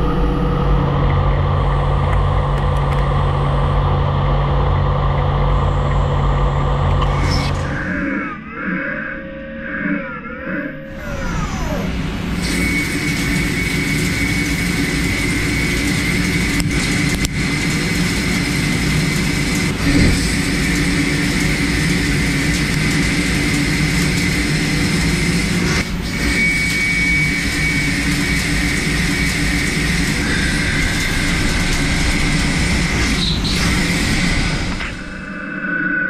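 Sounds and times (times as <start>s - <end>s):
high whine from cutting: 0.0s - 36.0s
lathe hum and hiss: 10.9s - 36.0s.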